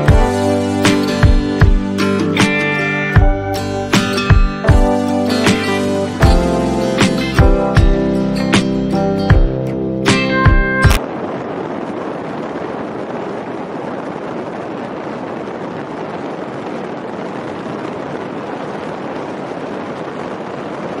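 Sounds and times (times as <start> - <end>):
strummed guitar: 0.0 - 11.0
steady rushing noise: 0.0 - 21.0.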